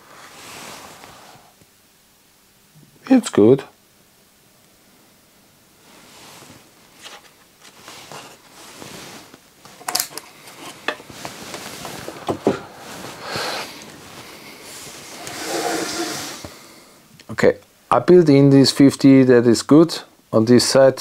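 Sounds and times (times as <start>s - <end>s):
soft rustling of parts: 5.8s - 17.3s.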